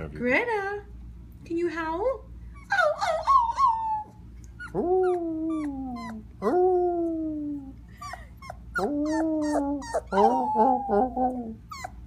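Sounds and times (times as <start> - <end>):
puppy howling: 2.6 - 12.0.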